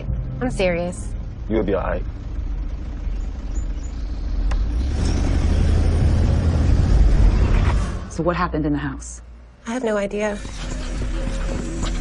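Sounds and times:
car engine and road rumble: 0.0 - 9.6.

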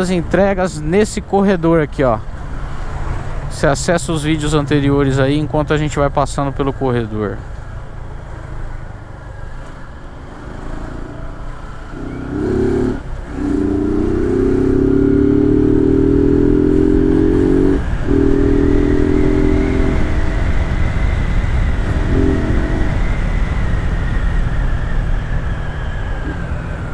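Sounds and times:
road rumble: 0.0 - 26.9
motorcycle engine accelerating: 10.2 - 26.9
wind rush: 17.2 - 25.5.

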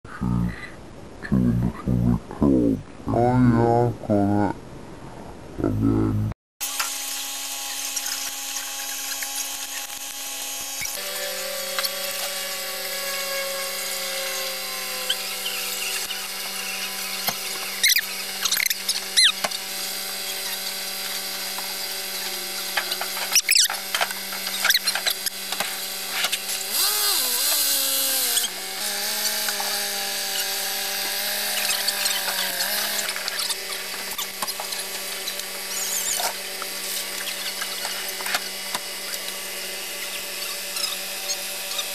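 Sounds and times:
high-pitched engine whine: 5.8 - 41.9
squeaky chirps: 17.8 - 19.4, 40.0 - 41.9.

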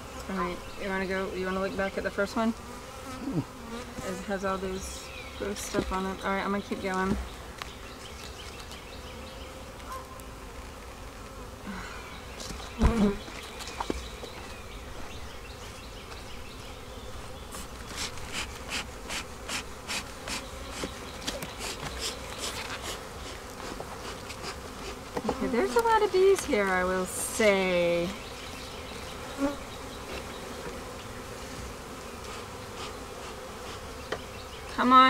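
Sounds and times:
honeybees buzzing: 0.0 - 35.0
hive tool scraping wooden frames: 5.4 - 11.6, 16.9 - 28.4, 29.3 - 35.0.

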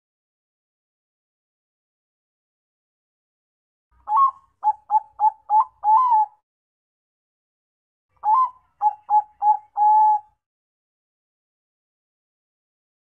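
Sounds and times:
dove cooing: 4.1 - 6.4, 8.2 - 10.4.

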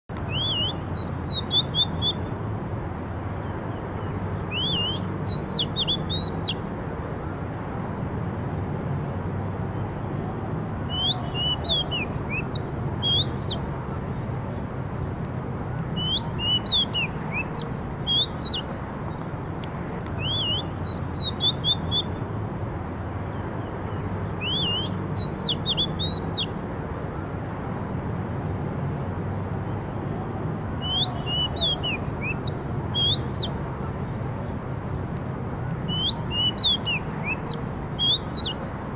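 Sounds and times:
bird singing whistled notes: 0.2 - 2.6, 3.4 - 6.7, 10.9 - 14.3, 15.9 - 18.7, 20.2 - 22.5, 23.4 - 26.6, 30.8 - 34.2, 35.8 - 38.6.

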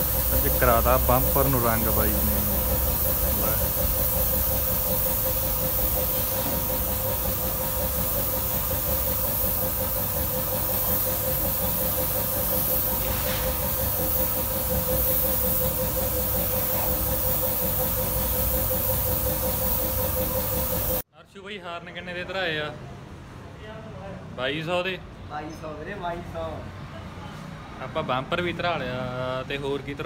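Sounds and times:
air compressor humming: 0.0 - 21.0
spray gun hissing: 0.0 - 21.0.

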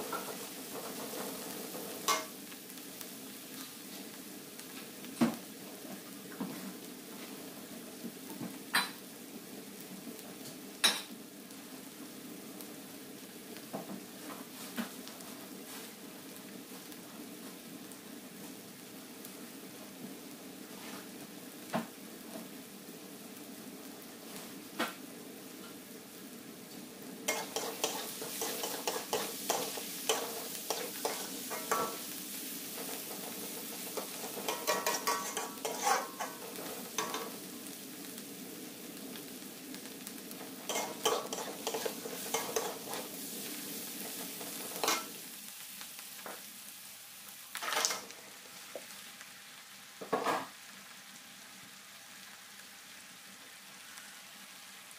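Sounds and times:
chilies sizzling in a wok: 0.0 - 54.9
metal spatula scraping a wok: 27.3 - 37.4, 40.7 - 45.2, 47.6 - 48.1
spatula knocking on wok: 34.0 - 36.4.

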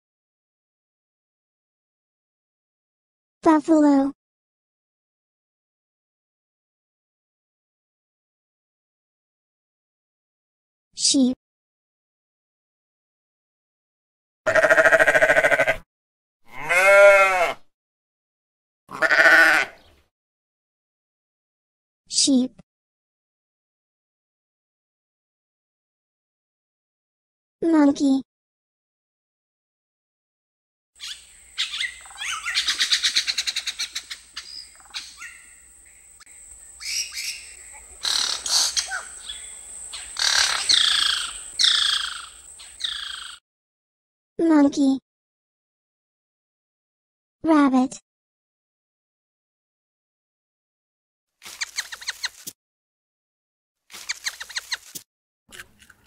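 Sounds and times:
sheep bleating: 14.5 - 15.8, 16.5 - 17.7, 18.9 - 19.8
monkeys chattering and screeching: 31.0 - 43.4, 54.1 - 54.8.

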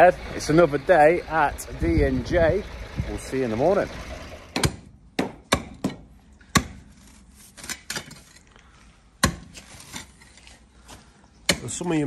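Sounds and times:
tools striking stony ground: 4.6 - 7.0, 9.2 - 10.6, 11.5 - 12.0.

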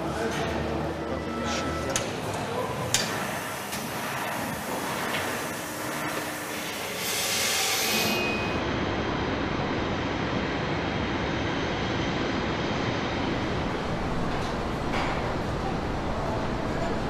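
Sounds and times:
jet engines running: 8.6 - 16.8.

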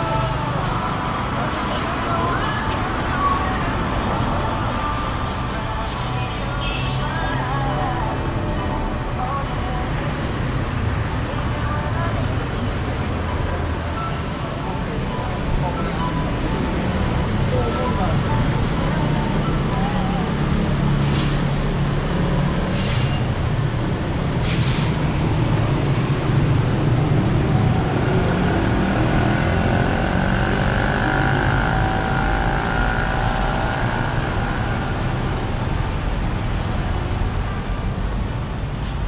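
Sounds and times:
passing vehicle whine: 0.0 - 38.3
traffic engine rumble: 0.0 - 39.0.

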